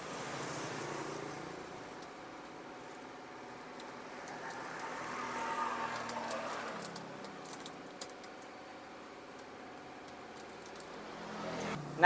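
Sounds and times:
passing vehicle hum: 0.0s - 7.9s, 10.6s - 12.0s
plastic containers crinkling and clicking: 6.0s - 8.6s, 9.3s - 11.0s.

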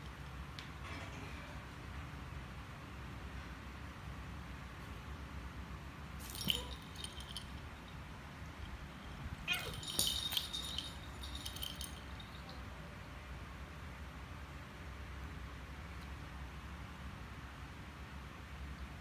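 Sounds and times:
cat collar bell jingling: 6.2s - 8.8s, 9.5s - 12.6s
cat crying: 9.4s - 9.8s.

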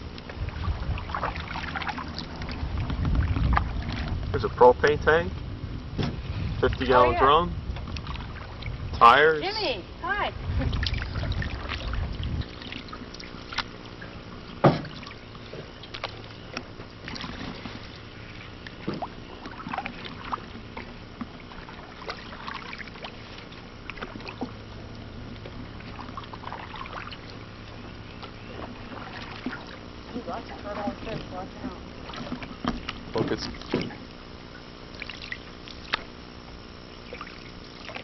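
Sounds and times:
paddle strokes and splashes: 0.0s - 4.6s, 7.6s - 38.0s
light knocks on canoe: 6.0s - 6.2s, 14.6s - 17.8s, 18.8s - 19.6s, 30.8s - 34.1s.

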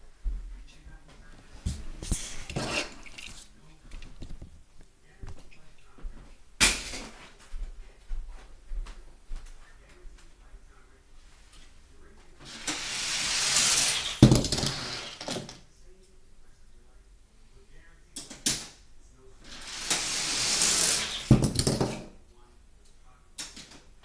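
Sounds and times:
toy cars rolling on plastic track: 12.4s - 15.5s, 19.4s - 21.8s.

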